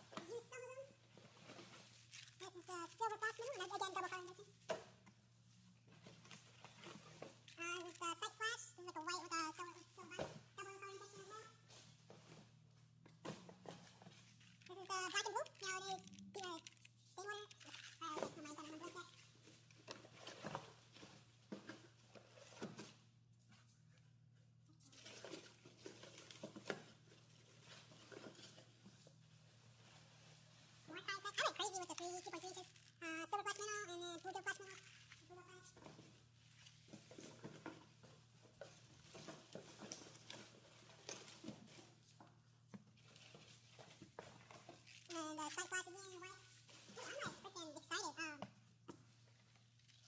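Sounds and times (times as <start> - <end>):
plastic packs rustling and crinkling: 0.0 - 23.0, 24.8 - 47.5, 48.6 - 50.0
plastic packages crinkling: 14.1 - 21.0, 29.7 - 35.3.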